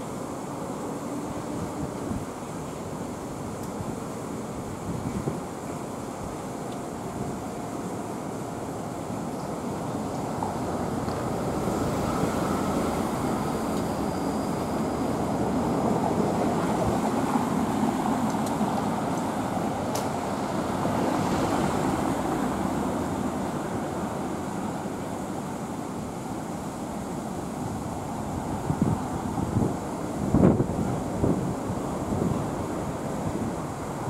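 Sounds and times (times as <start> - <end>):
background traffic hum: 0.0 - 34.0
car passing by: 10.4 - 25.0.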